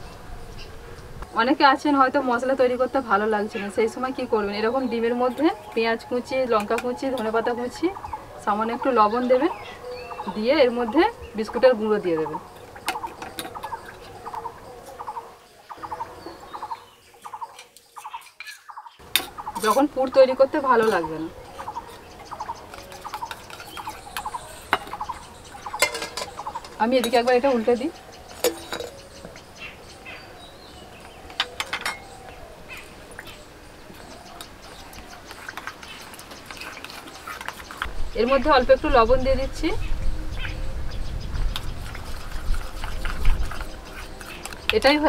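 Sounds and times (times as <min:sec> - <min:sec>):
bird calling: 0:03.5 - 0:45.0
spoon clinking against steel bowls: 0:03.8 - 0:07.9, 0:10.3 - 0:15.0, 0:16.6 - 0:29.4, 0:31.2 - 0:32.9
light taps stirring in a bowl: 0:20.8 - 0:27.5.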